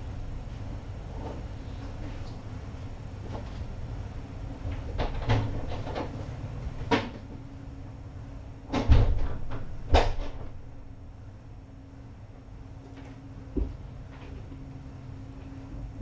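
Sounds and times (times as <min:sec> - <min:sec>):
door thumping shut: 0:08.7 - 0:10.5.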